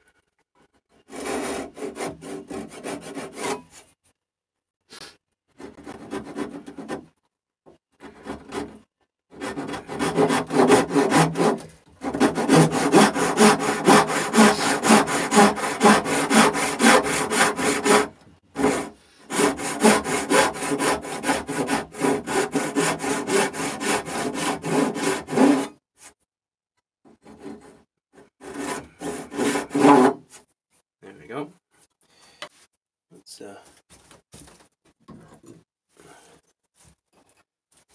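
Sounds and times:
hand saw cutting wood: 1.1 - 3.9, 5.6 - 7.1, 8.0 - 25.8, 27.1 - 30.4.

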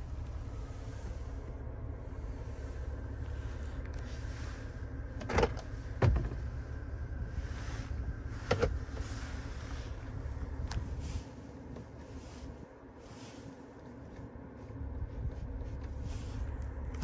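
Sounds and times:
car cabin hum: 0.0 - 17.0
knocks and clicks of interior trim: 5.2 - 6.5.

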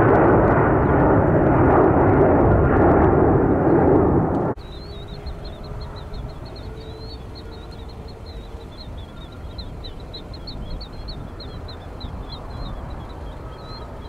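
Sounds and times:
low background rumble: 0.0 - 14.0
small birds chirping: 4.6 - 14.0.

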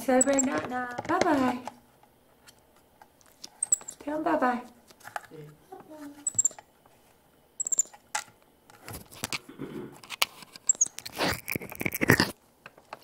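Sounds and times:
monkey squeaks: 0.0 - 0.6, 3.6 - 4.0, 6.2 - 6.6, 7.6 - 8.0, 10.6 - 11.9
hands clicking and rustling on camera: 0.2 - 1.8.

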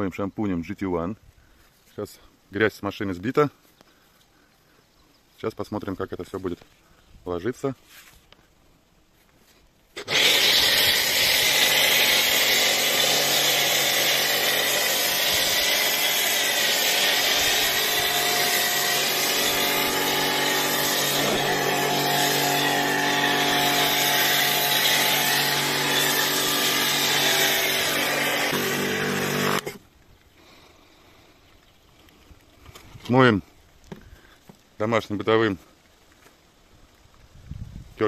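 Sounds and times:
pressure washer motor humming: 10.0 - 29.8.

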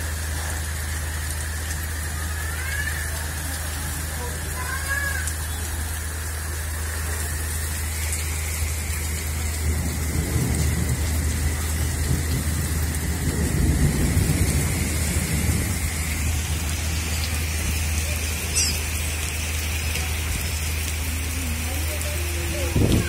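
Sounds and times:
heavy rain pouring: 0.0 - 23.0
low rumble: 8.4 - 19.3.

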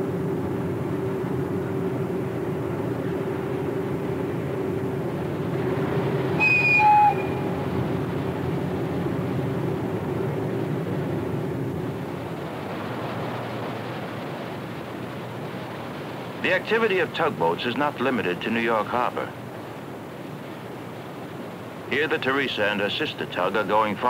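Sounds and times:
boat diesel engine droning: 0.0 - 24.0
short high whistle: 6.4 - 7.4.

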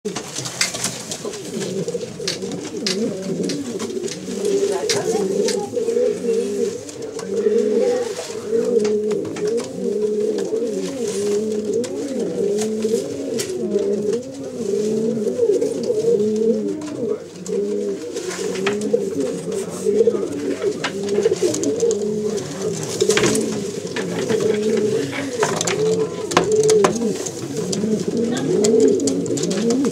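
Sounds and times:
pigeons cooing: 0.1 - 29.9.

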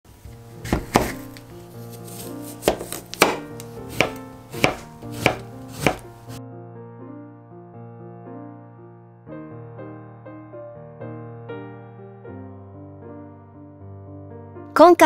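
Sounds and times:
knife knocking on cutting board: 0.7 - 1.3, 2.6 - 6.1.

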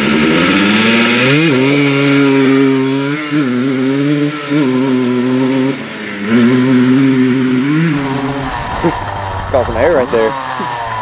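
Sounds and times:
two-stroke engine revving hard: 0.0 - 11.0.

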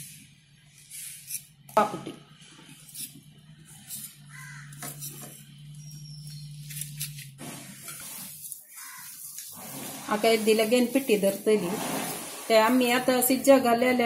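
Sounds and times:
whisk scraping steel bowl: 7.8 - 14.0.

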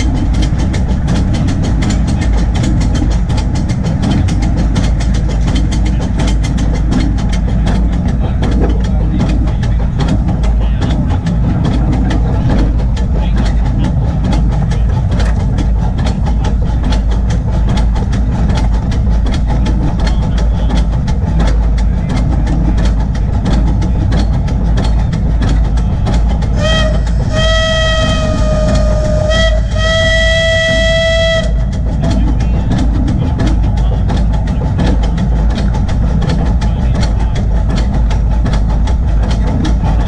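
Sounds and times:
steam locomotive rumble: 0.0 - 40.0
wheels clattering on rails: 0.0 - 40.0
steam whistle blasts: 26.6 - 31.8.

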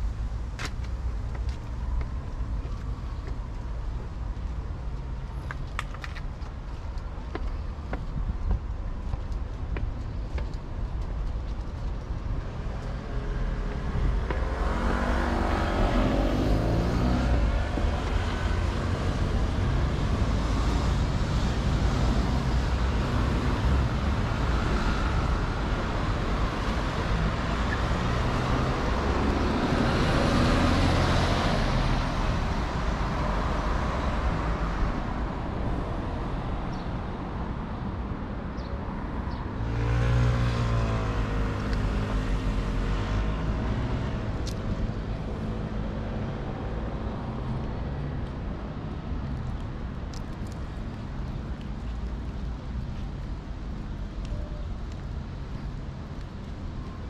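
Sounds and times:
traffic rumble: 0.0 - 57.0
cars passing close by: 12.2 - 54.0.

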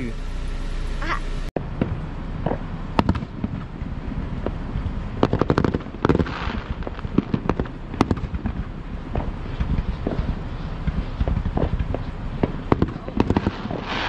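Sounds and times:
low rumble: 0.0 - 13.9
fireworks crackling: 0.0 - 14.0
fireworks bangs and pops: 1.6 - 14.0.

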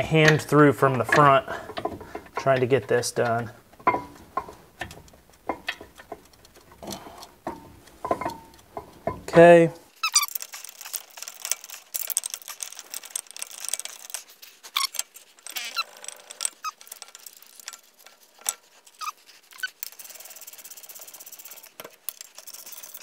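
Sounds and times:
light metallic clicks and scrapes: 0.0 - 23.0
fast run of ticks: 9.9 - 23.0.

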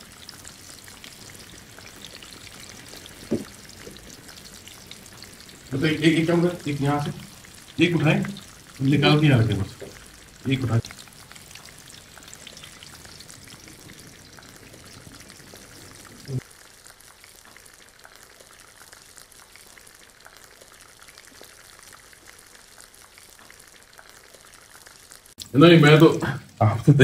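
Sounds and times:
food sizzling in hot oil: 0.0 - 27.0.

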